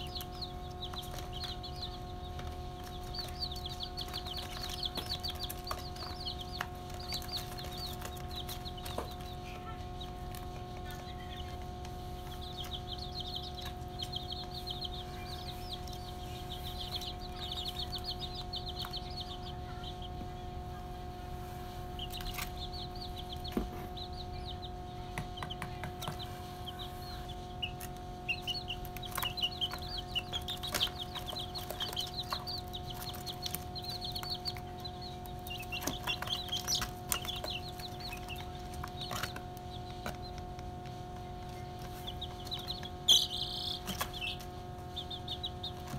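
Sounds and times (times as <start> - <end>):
chicks peeping: 0.0 - 45.9
steady low hum: 0.0 - 45.9.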